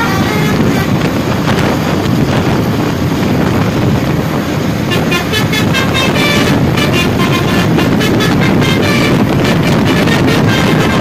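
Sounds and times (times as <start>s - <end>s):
bus horn playing musical notes: 0.0s - 1.9s, 4.7s - 11.0s
road noise: 0.0s - 11.0s.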